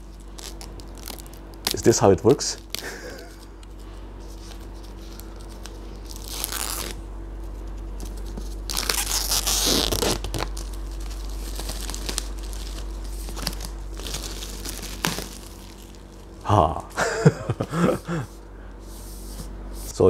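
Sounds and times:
plastic wrap tearing and crinkling: 0.0 - 3.5, 4.3 - 7.0, 8.0 - 16.5.

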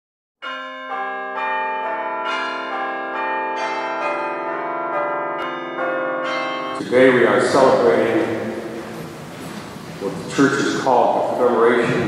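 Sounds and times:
church bells ringing: 0.4 - 9.3.

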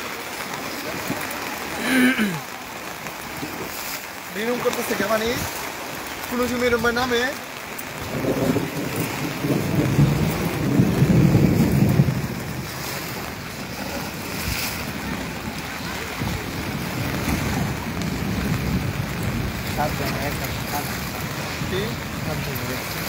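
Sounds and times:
floodwater rushing and lapping: 0.0 - 23.0
wind buffeting the microphone: 7.9 - 23.0.

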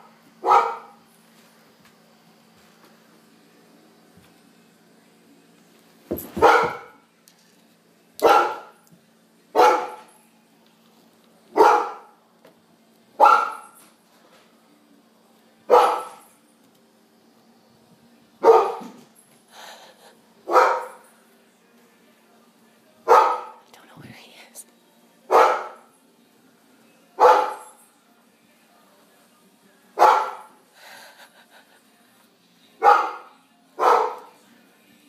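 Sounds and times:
dog barking: 0.4 - 1.0, 6.4 - 7.0, 8.2 - 8.8, 9.6 - 10.1, 11.5 - 12.2, 13.2 - 13.8, 15.7 - 16.2, 18.4 - 19.0, 20.5 - 21.0, 23.1 - 23.6, 25.3 - 25.9, 27.2 - 27.7, 30.0 - 30.5, 32.8 - 34.3.

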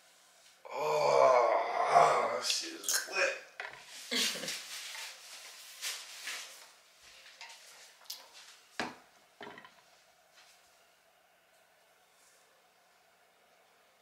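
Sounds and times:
dressing pad rustling: 4.1 - 8.6.

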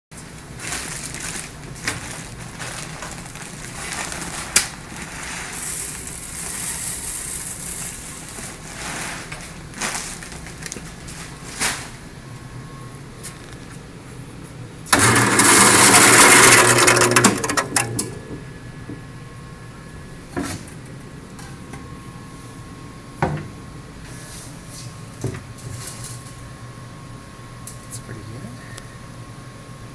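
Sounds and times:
paper sack crinkling: 0.2 - 12.2, 15.0 - 18.2
grain mill grinding: 2.4 - 9.8, 14.9 - 18.2
grain pouring into metal hopper: 3.0 - 9.9, 14.9 - 18.2.

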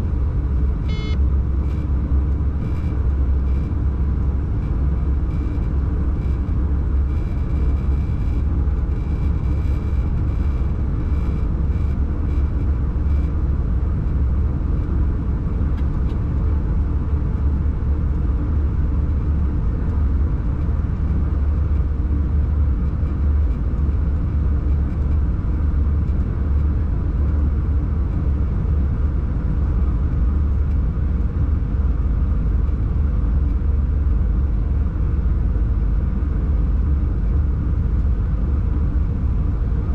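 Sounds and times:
faint high tone: 0.9 - 1.2.

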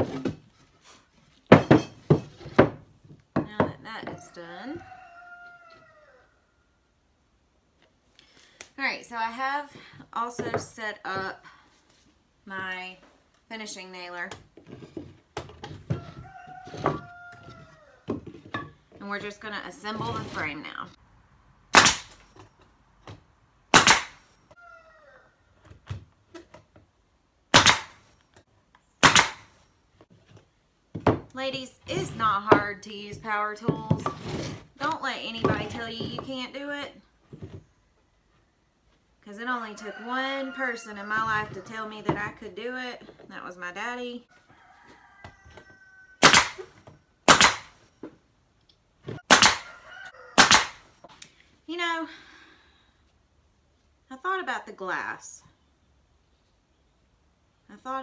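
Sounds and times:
nail gun firing: 21.7 - 22.2, 23.7 - 24.2, 27.5 - 28.0, 29.0 - 29.4, 46.2 - 46.6, 47.3 - 47.7, 49.3 - 49.6, 50.4 - 50.8.

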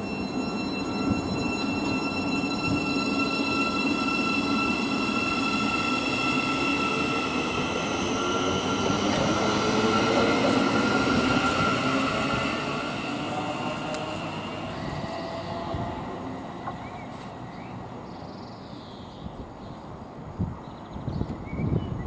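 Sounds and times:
traction motor whine: 0.0 - 16.8
train wheels rumbling on rails: 0.0 - 18.0.

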